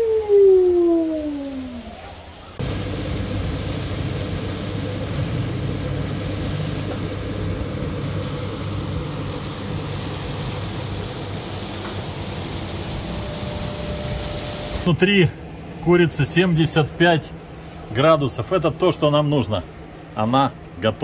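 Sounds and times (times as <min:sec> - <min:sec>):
motor humming: 0:02.6 - 0:14.9.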